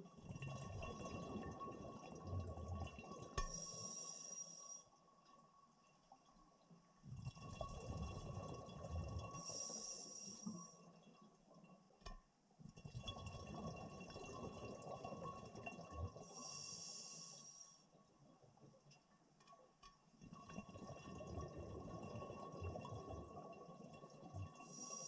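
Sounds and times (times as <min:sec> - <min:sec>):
rumbling exhaled bubbles: 0:07.1 - 0:09.5, 0:12.8 - 0:16.3, 0:20.4 - 0:24.7
diver breathing through regulator: 0:09.4 - 0:10.7, 0:16.3 - 0:17.8.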